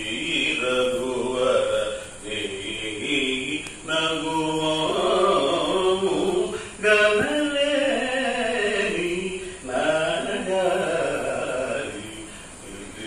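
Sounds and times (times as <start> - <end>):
man singing into a microphone: 0.0 - 13.0
singer breathing: 1.9 - 2.2, 6.5 - 6.8, 9.4 - 9.7, 12.2 - 12.6.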